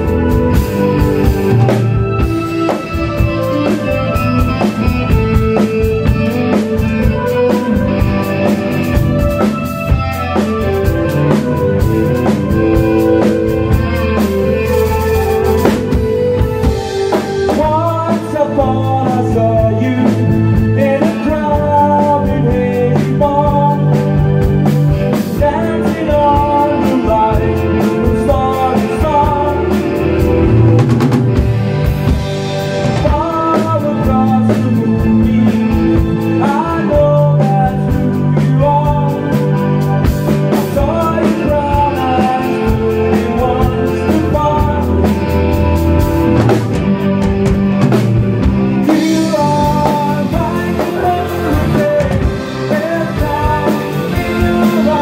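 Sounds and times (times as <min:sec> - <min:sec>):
rock band playing: 0:00.0 - 0:55.0
man singing into microphone: 0:17.1 - 0:24.5, 0:25.1 - 0:30.8, 0:32.9 - 0:45.5, 0:48.8 - 0:55.0.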